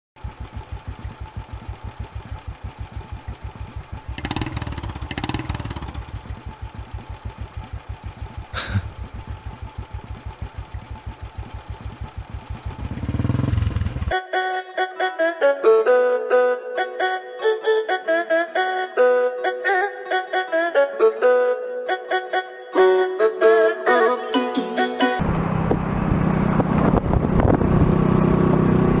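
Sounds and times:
motorcycle engine idling and revving: 0.2s - 14.2s, 25.2s - 29.0s
music: 14.1s - 25.2s.

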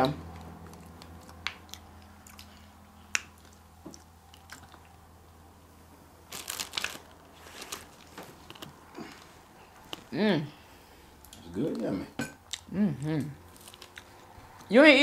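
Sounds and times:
wet chewing and smacking: 0.2s - 5.1s, 12.4s - 12.7s, 13.5s - 14.7s.

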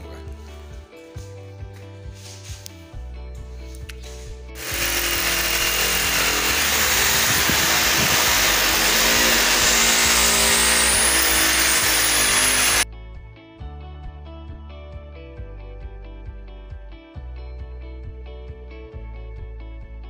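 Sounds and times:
electric power tool running: 4.6s - 12.8s.

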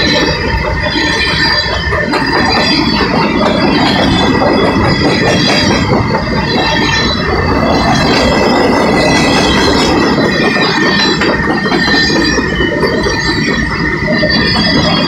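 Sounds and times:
high-pitched wheel squeal: 0.0s - 15.0s
train wheels rumbling on rail: 0.0s - 15.0s.

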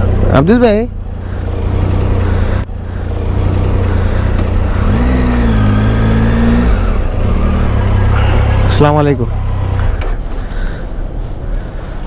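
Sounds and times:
motorcycle engine idling: 0.0s - 5.3s.

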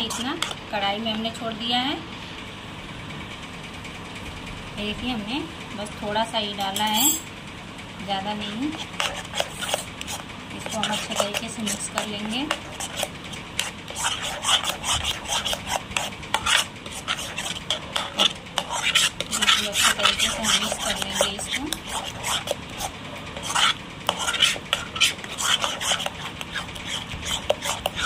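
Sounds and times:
metal spoon scraping pan: 0.0s - 0.6s, 8.8s - 28.0s.

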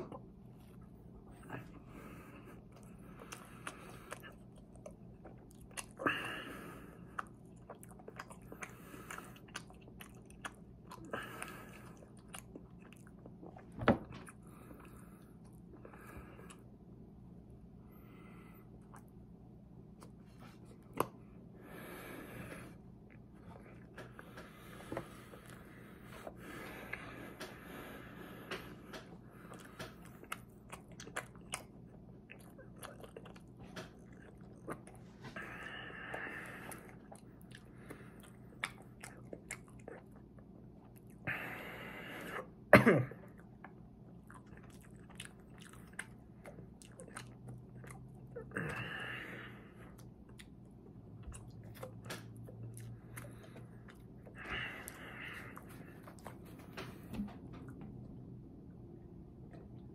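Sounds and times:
person breathing: 1.4s - 4.4s, 6.0s - 7.2s, 17.8s - 18.8s, 21.3s - 30.1s, 35.2s - 38.4s, 41.3s - 42.6s, 48.5s - 50.0s, 52.9s - 57.3s
wet chewing clicks and smacks: 2.7s - 6.1s, 7.0s - 16.7s, 18.8s - 19.3s, 28.5s - 41.3s, 43.2s - 48.9s, 49.8s - 57.9s.

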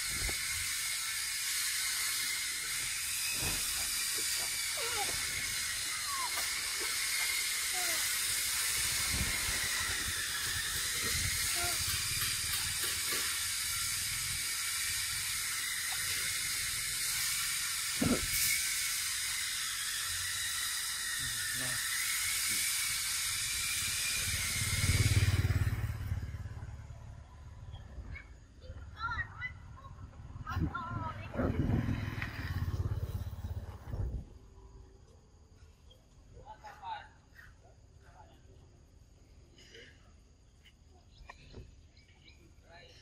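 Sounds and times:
high insect drone: 0.0s - 28.8s.

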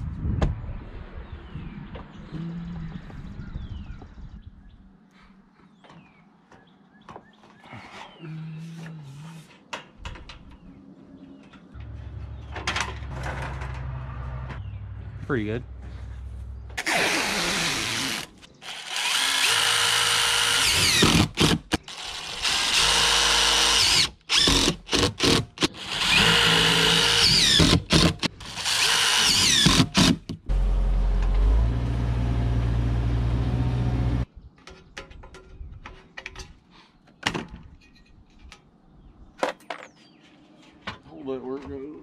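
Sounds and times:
cordless driver driving screws: 16.8s - 30.3s.

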